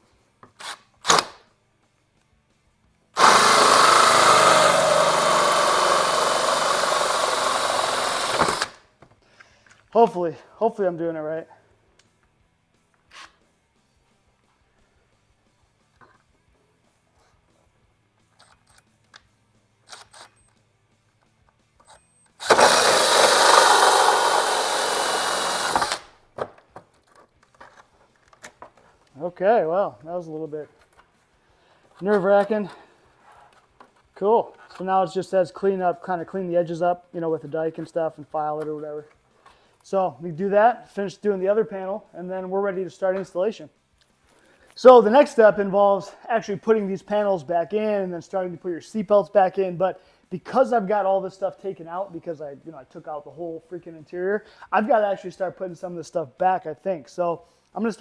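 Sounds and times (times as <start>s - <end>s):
drill hole saw cutting plastic: 3.2s - 8.8s, 22.4s - 26.1s.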